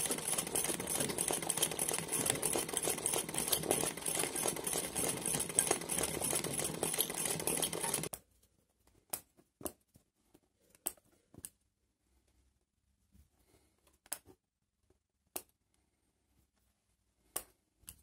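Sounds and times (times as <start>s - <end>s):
sewing machine running fast: 0.0s - 8.1s.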